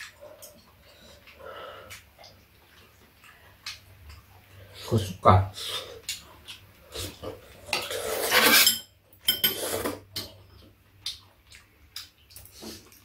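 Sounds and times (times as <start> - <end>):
utensils clinking on ceramic bowls: 7.7 - 10.3.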